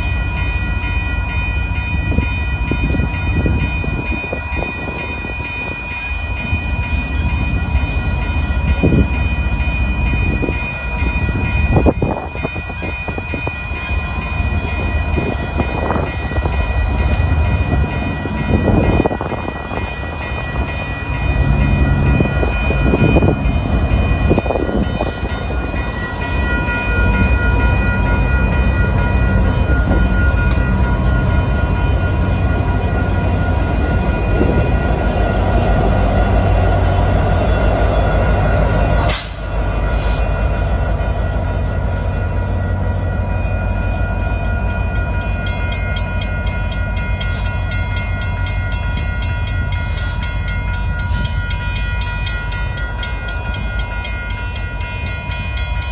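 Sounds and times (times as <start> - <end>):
crossing warning bell ringing: 0.0 - 55.9
diesel locomotives rumbling: 0.0 - 55.9.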